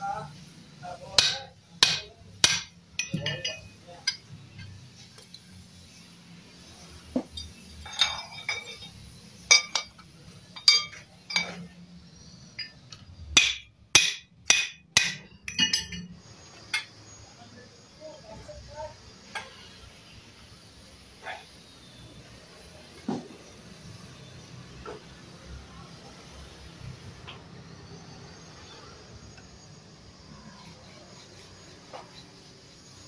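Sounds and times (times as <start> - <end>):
hammer tapping on metal: 1.2 - 4.8, 13.4 - 16.1.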